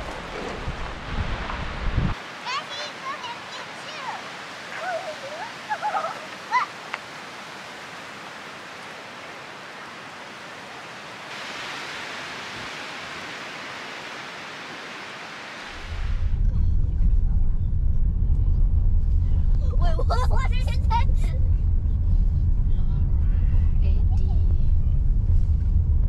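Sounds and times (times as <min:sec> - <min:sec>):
wind rushing: 0:00.0 - 0:02.4, 0:11.3 - 0:26.0
voices: 0:02.2 - 0:07.1.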